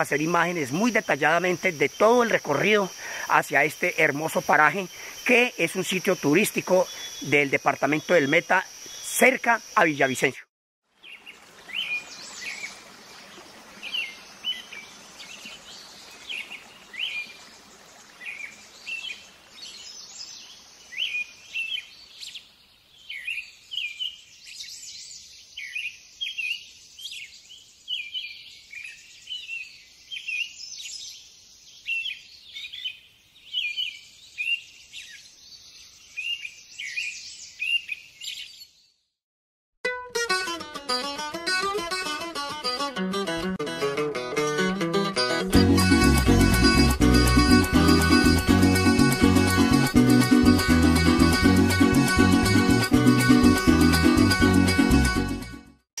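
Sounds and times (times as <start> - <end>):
small birds chirping: 0.0 - 10.3, 11.0 - 39.1
insects hissing: 0.0 - 10.4.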